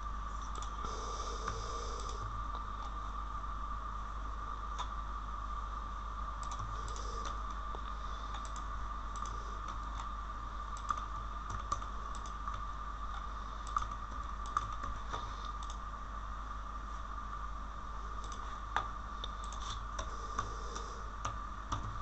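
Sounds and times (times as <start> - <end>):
steady background hum: 0.0 - 22.0
computer keyboard typing: 6.4 - 7.4, 8.3 - 10.1, 10.8 - 15.8, 18.2 - 22.0.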